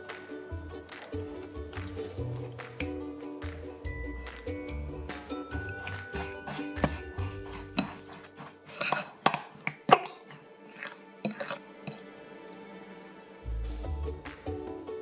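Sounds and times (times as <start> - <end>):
spoon clinking in glass bowl: 5.1 - 12.0.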